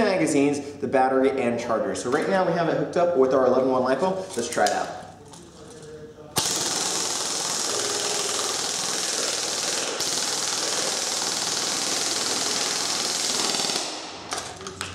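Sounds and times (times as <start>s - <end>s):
airsoft gun firing full auto: 6.4s - 14.1s.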